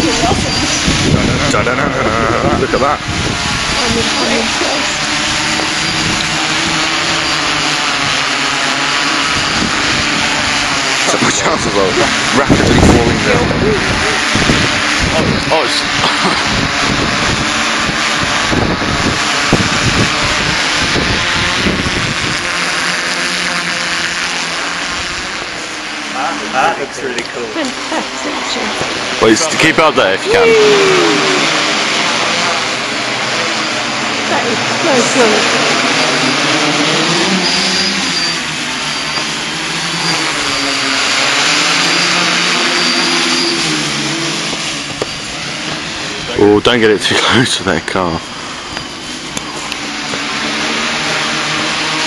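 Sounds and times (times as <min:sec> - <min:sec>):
wind rumbling on microphone: 0:00.0 - 0:23.2
drone propellers buzzing: 0:00.0 - 0:52.0.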